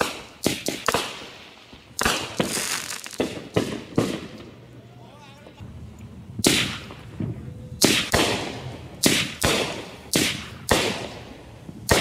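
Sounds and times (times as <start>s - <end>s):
firework bangs with echo: 2.0s - 4.5s, 6.4s - 12.0s.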